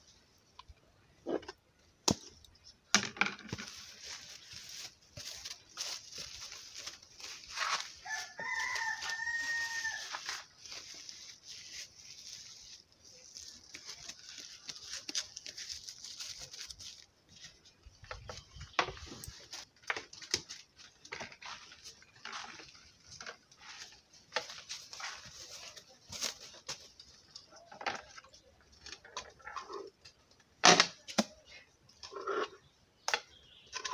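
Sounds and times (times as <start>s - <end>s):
plastic bag crinkling: 3.6s - 17.1s
rooster crowing: 8.0s - 10.3s.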